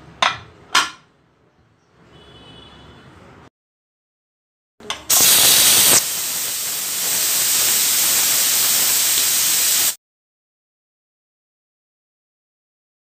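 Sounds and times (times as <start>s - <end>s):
pressure cooker steam hissing: 5.1s - 10.0s.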